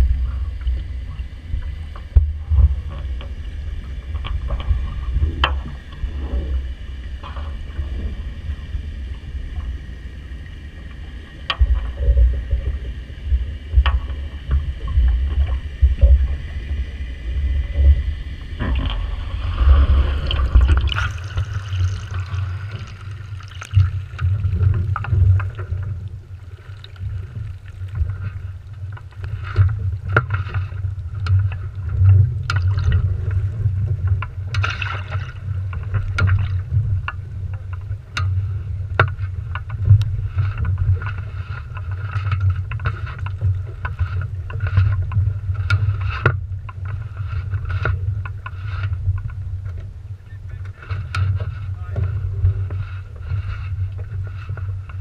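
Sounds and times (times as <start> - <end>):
boat and rigging knocking: 0.0 - 8.8, 9.5 - 55.0
low rumble: 0.0 - 55.0
muffled underwater gurgling: 0.0 - 55.0
water slapping against boat hull: 17.5 - 55.0.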